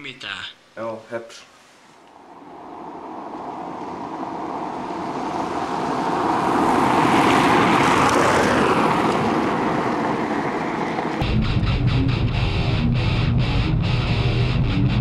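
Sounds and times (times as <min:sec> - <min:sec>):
car driving past on rough road: 0:02.2 - 0:11.2.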